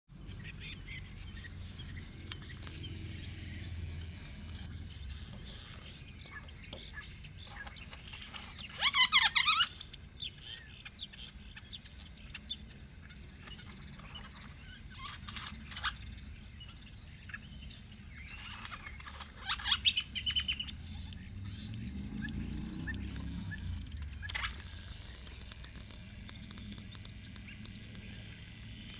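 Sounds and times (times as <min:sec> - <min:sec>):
grackle chirps: 0:00.9 - 0:28.9.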